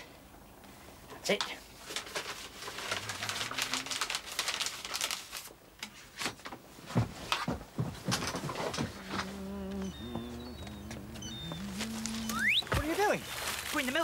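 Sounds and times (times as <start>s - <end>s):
paper rustling and crinkling: 1.8s - 6.5s, 10.0s - 14.0s.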